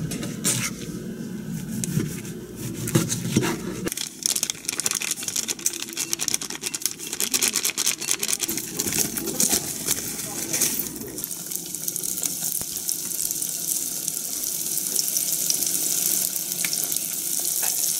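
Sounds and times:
plastic bag crinkling: 3.9s - 11.2s.

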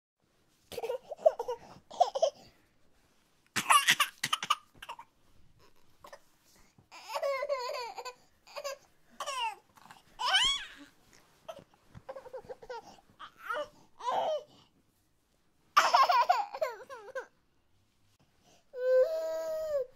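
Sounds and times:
babies crying: 10.2s - 10.8s.

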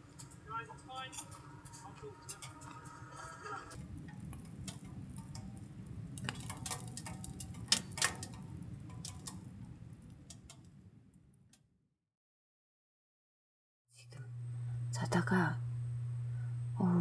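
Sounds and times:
low rush of flame: 0.0s - 11.4s
fire crackling and popping: 0.0s - 11.6s.

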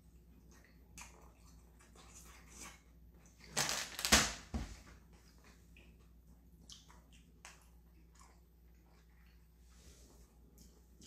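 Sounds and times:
faint chewing: 0.0s - 3.6s, 5.0s - 11.0s.

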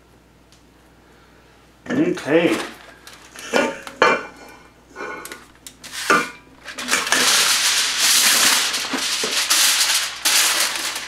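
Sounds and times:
aluminium foil crinkling: 2.2s - 4.0s, 5.2s - 11.0s.

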